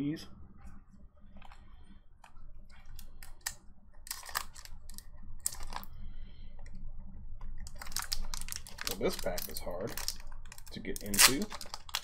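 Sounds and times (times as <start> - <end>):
foil wrapper crinkling: 2.9 - 5.9, 7.6 - 12.0.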